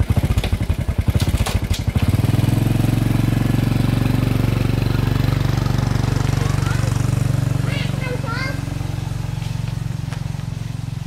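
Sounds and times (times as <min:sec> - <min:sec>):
engine clatters: 0:00.0 - 0:11.0
small engine running: 0:00.0 - 0:11.0.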